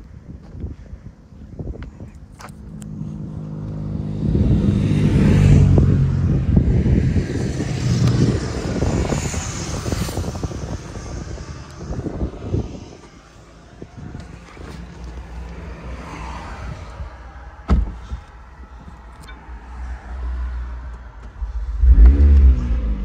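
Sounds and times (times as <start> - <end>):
vehicle engine passing: 2.5 - 13.6, 19.7 - 23.0.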